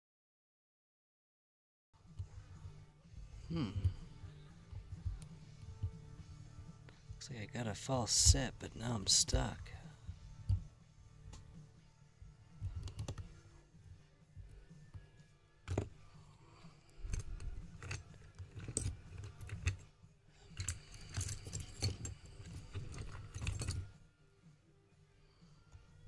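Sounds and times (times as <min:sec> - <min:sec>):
lock-picking tools clicking on padlock: 0:17.0 - 0:19.8, 0:20.6 - 0:23.9.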